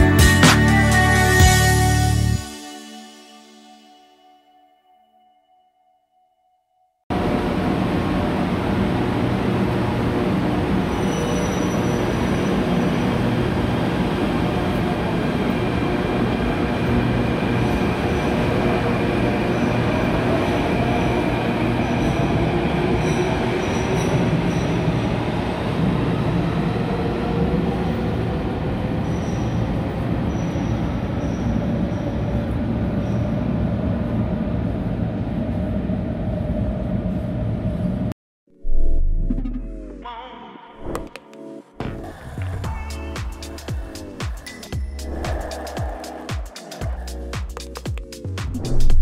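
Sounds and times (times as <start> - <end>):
subway train running noise: 7.1 - 38.1, 42.0 - 49.0
wheel squeals: 10.8 - 13.2.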